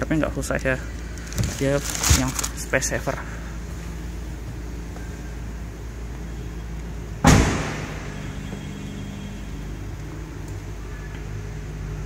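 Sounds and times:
steady low hum: 0:00.0 - 0:12.0
car tailgate slamming shut: 0:07.2 - 0:08.2.

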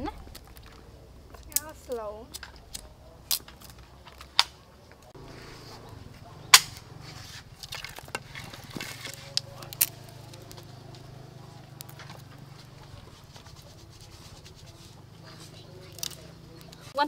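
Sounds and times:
twigs snapping and clicking: 0:00.2 - 0:05.1, 0:07.5 - 0:13.6, 0:15.7 - 0:16.9.

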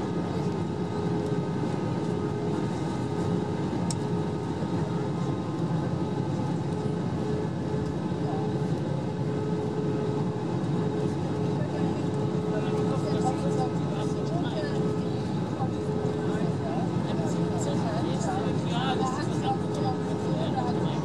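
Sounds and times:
airplane cabin drone: 0:00.0 - 0:21.0.

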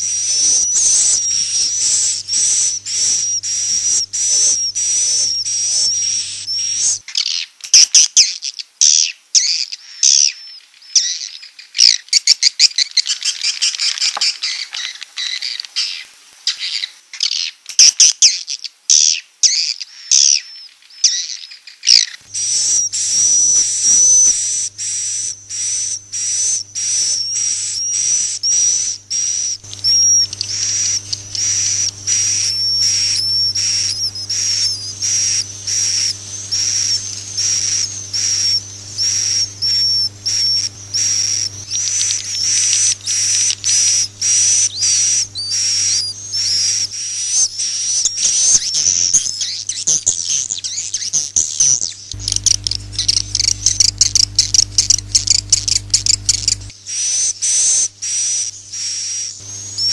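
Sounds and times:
low steady hum: 0:00.0 - 0:07.0, 0:22.2 - 0:50.6, 0:52.0 - 0:59.9.

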